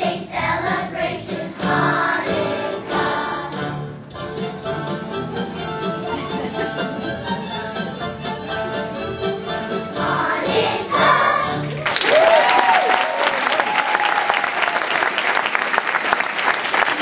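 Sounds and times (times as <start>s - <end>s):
choir singing: 0.0s - 3.8s, 9.6s - 11.8s
audience applause: 11.6s - 17.0s
audience whooping: 11.8s - 17.0s.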